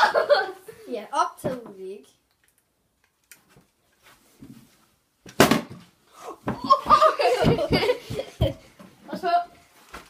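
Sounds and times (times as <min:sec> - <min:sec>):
children laughing: 0:00.0 - 0:00.9, 0:06.4 - 0:08.8
plastic bottle thudding on wooden floor: 0:05.3 - 0:08.6.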